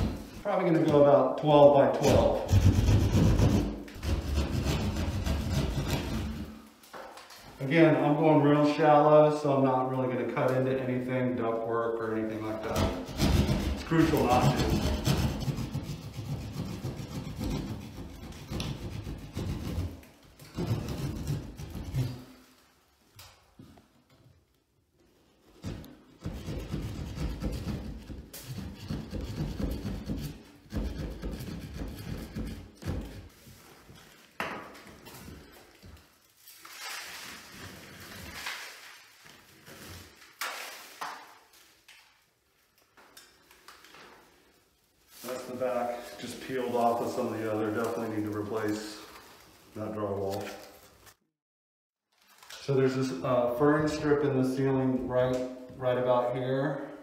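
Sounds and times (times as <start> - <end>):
drywall scraping and rustling: 0.0 - 8.9, 12.0 - 42.2, 42.9 - 51.2
hand saw cutting drywall: 1.9 - 6.7, 12.6 - 22.4, 25.8 - 33.4.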